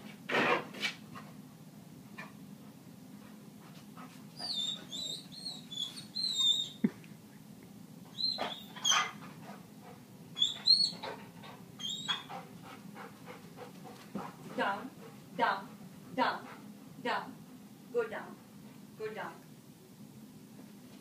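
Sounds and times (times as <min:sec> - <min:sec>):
dog whining: 0:04.4 - 0:06.9, 0:08.1 - 0:09.2, 0:10.4 - 0:11.2, 0:11.8 - 0:12.4.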